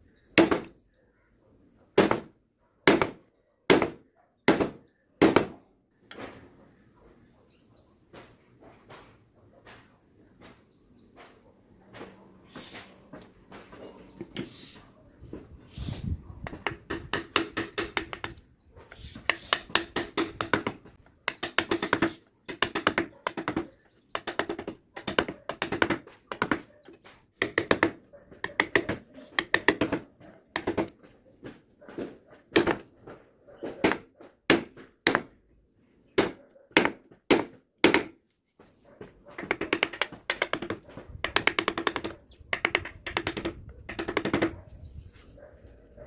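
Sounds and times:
chisel knocking into wood: 16.4 - 18.4, 19.2 - 26.6, 27.4 - 31.0, 39.4 - 44.6.

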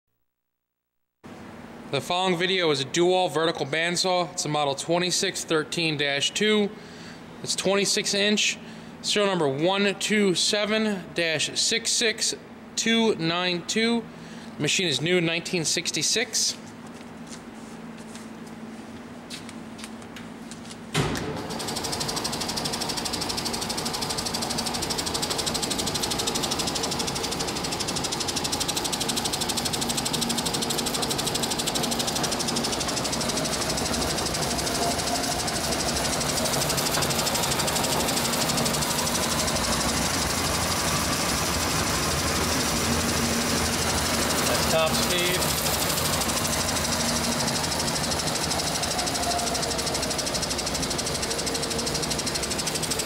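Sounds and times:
band saw running: 21.3 - 53.0.

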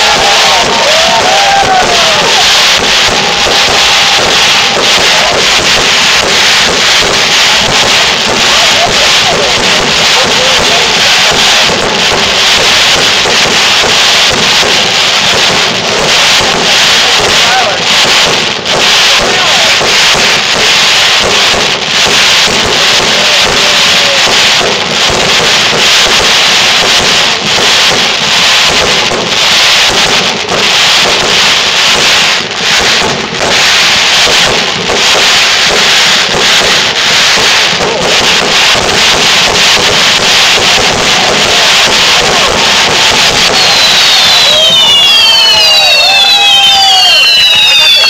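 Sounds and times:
fireworks crackling and popping: 0.0 - 48.0.

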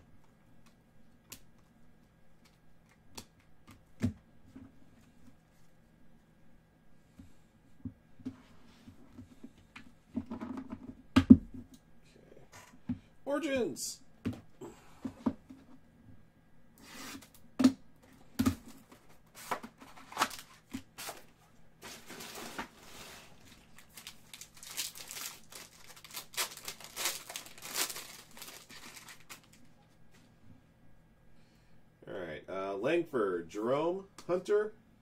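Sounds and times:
foil wrapper tearing and crinkling: 23.5 - 29.6.

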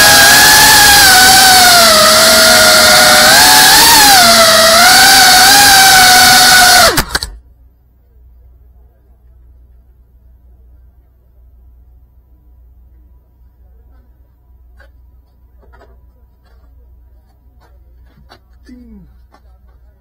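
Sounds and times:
drone motors whining: 0.0 - 7.4.

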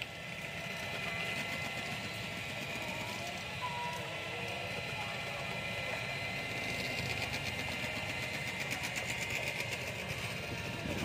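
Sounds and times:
small motor whirring: 0.0 - 11.0.

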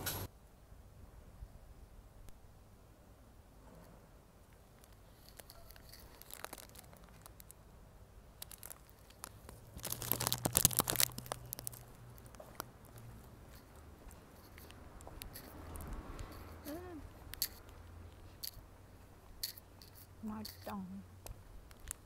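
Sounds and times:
crisp wafer crunch: 4.7 - 7.6, 8.4 - 16.0
plastic wrapper crinkling and tearing: 4.8 - 7.6, 8.4 - 13.8.

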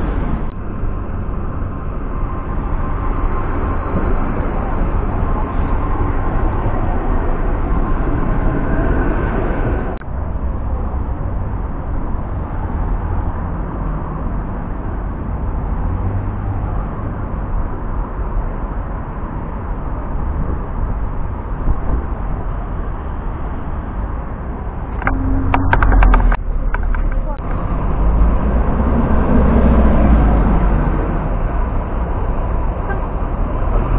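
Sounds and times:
tram running past: 0.0 - 12.4
cars passing: 0.0 - 33.9
low engine hum: 0.0 - 33.9.

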